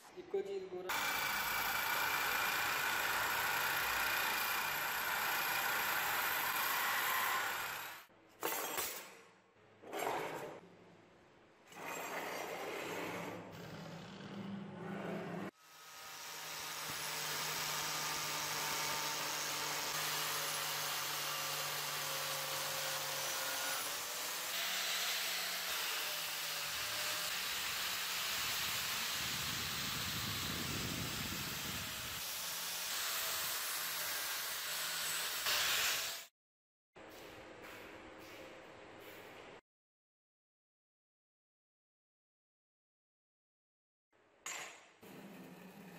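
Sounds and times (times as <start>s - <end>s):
angle grinder buffing metal: 16.4s - 32.2s.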